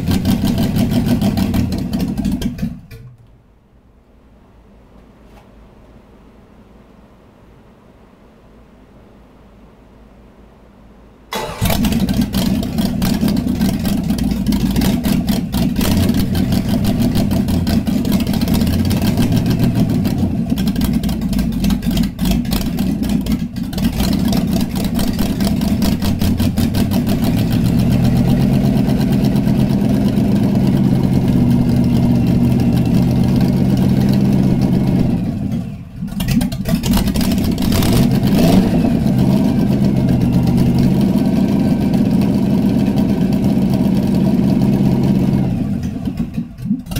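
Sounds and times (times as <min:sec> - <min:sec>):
engine starting and revving: 0:00.0 - 0:03.0, 0:11.3 - 0:46.9.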